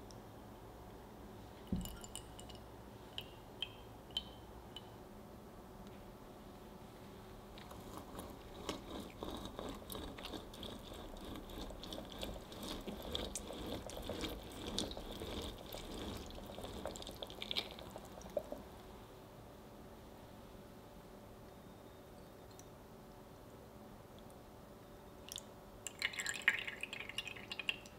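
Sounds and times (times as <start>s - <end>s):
grapefruit squishing on citrus reamer: 7.5s - 18.7s
juice running into bowl: 7.6s - 18.8s, 25.9s - 27.9s.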